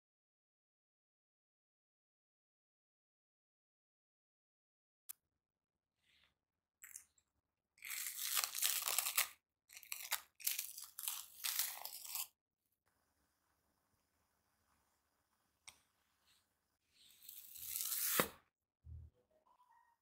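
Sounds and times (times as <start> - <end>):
cling film crinkling: 7.8 - 12.3.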